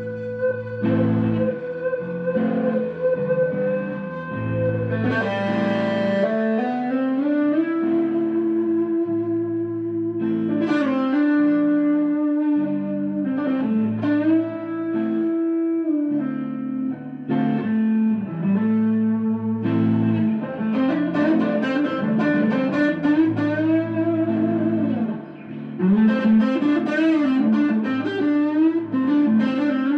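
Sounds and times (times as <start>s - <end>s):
guitar music with bending notes: 0.0s - 29.9s.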